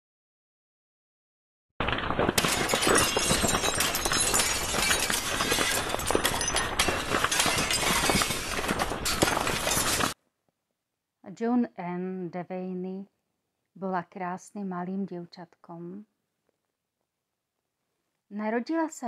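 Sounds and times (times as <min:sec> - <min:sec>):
glass shattering: 0:01.8 - 0:10.2
glass shards clinking: 0:02.2 - 0:10.2.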